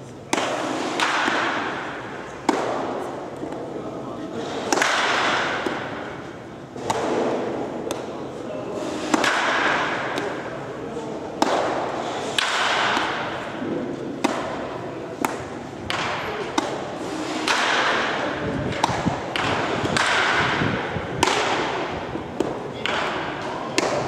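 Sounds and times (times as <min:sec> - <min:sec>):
baseballs smacking into mitt: 0:04.7 - 0:08.2, 0:09.0 - 0:10.5, 0:11.3 - 0:24.0.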